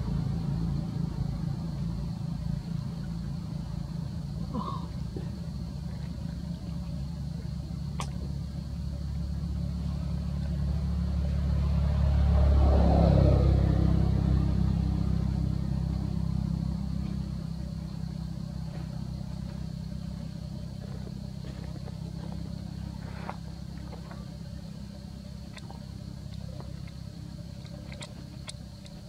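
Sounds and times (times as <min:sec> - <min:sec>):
vehicle engine passing by: 0:00.0 - 0:04.2, 0:09.5 - 0:29.0.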